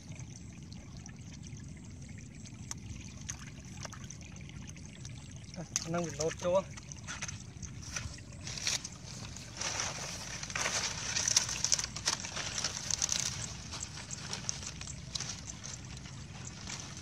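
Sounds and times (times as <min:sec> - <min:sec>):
dry leaves rustling and crackling: 0:07.8 - 0:17.0.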